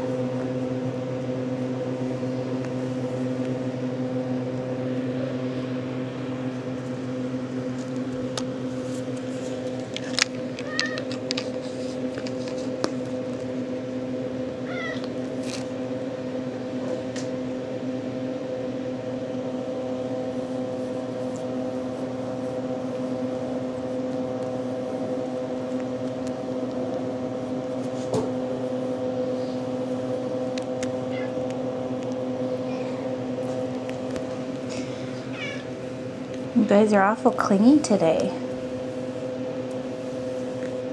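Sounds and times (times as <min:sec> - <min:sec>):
mechanical hum: 0:00.0 - 0:40.9
kitten mewing: 0:10.6 - 0:11.1, 0:14.6 - 0:15.1, 0:31.1 - 0:31.5, 0:32.6 - 0:33.2, 0:35.0 - 0:35.8.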